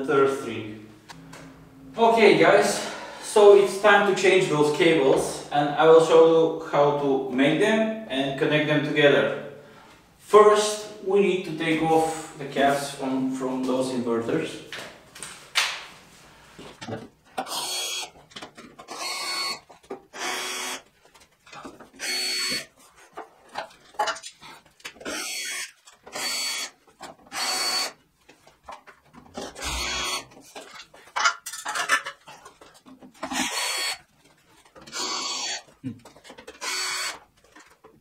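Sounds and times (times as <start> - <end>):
cordless drill whining: 18.9 - 20.8, 22.0 - 22.7, 25.0 - 26.7, 27.3 - 28.0, 29.6 - 30.3, 34.9 - 35.7, 36.6 - 37.2.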